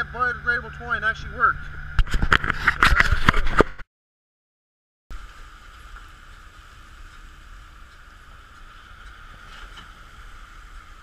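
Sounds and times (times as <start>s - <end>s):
boat engine drone: 0.0s - 3.0s.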